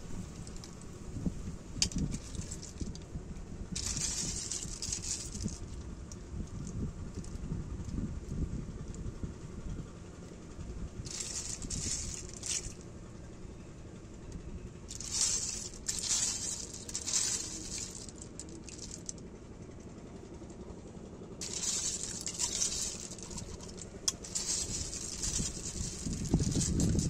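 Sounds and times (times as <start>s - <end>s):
snail shells rattling and clicking: 1.8s - 3.1s, 3.7s - 7.4s, 11.0s - 13.3s, 14.8s - 19.4s, 21.4s - 27.0s.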